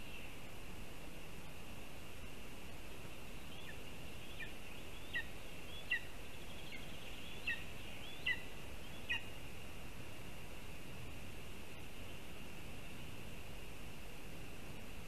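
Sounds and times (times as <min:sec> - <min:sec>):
steady hiss: 0:00.0 - 0:15.0
eagle chick chirping: 0:03.6 - 0:09.2.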